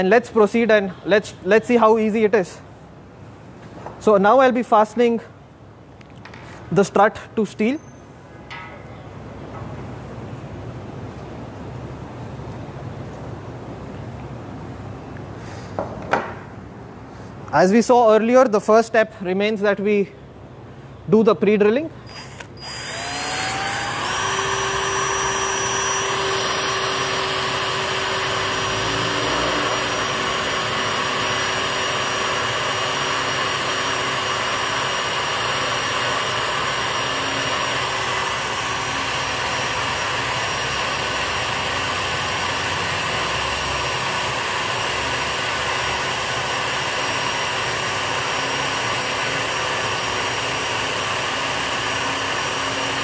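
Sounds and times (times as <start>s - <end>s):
power drill whining: 22.1s - 53.0s.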